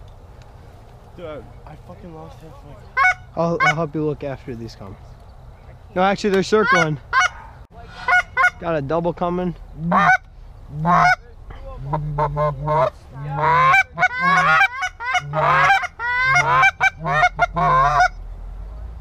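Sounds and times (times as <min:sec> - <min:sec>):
goose call honks and clucks: 0:02.9 - 0:03.9, 0:06.5 - 0:08.7, 0:09.8 - 0:18.2.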